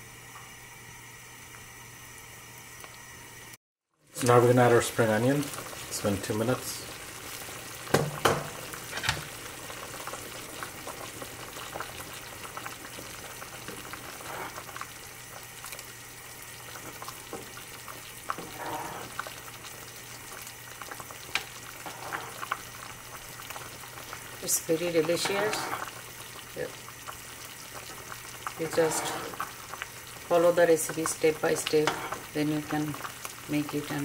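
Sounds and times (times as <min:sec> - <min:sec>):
soup bubbling at a boil: 0:00.6 - 0:34.0
metal ladle stirring and scraping: 0:18.3 - 0:19.2, 0:28.7 - 0:29.5, 0:31.7 - 0:32.2.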